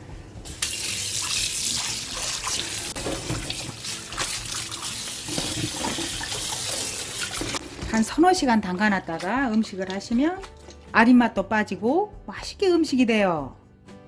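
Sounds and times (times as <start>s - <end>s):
tap water running into a pan: 0.5s - 8.0s.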